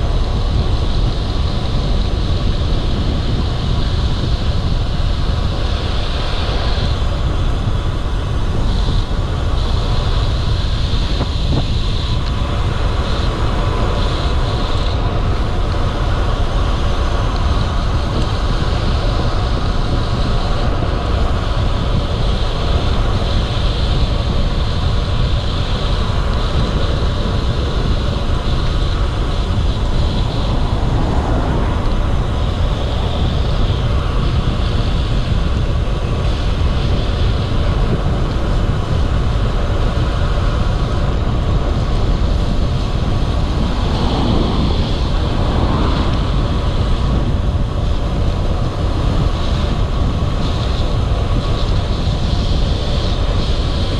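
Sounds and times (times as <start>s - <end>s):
bike tyre noise: 0.0s - 53.9s
high hiss: 0.0s - 53.9s
wind rumble on microphone: 0.0s - 53.9s.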